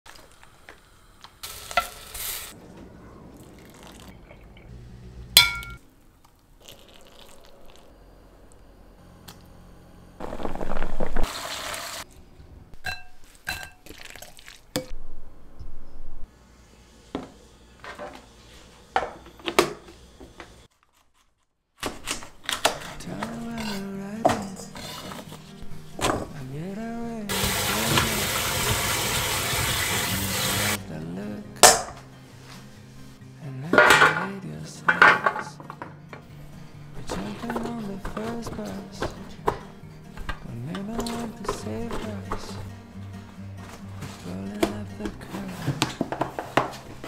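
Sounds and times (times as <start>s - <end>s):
utensils clinking on dishes: 5.4s - 5.8s, 33.7s - 35.8s.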